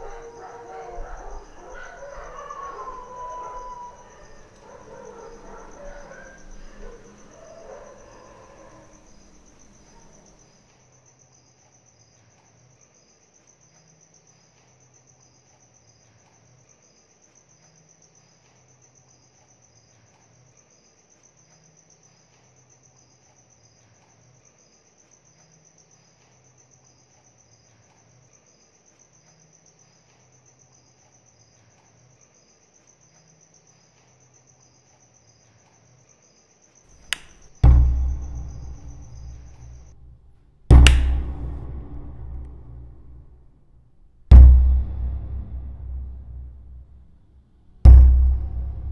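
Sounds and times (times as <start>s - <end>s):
faint low hum: 0.0s - 10.4s
crickets chirping: 0.0s - 43.6s.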